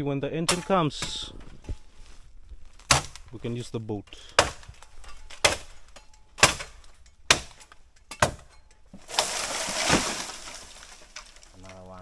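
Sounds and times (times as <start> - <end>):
dry bamboo leaves rustling: 0.0 - 7.6, 8.9 - 12.0
blade chopping bamboo: 2.8 - 3.2, 4.2 - 5.8, 6.4 - 10.4.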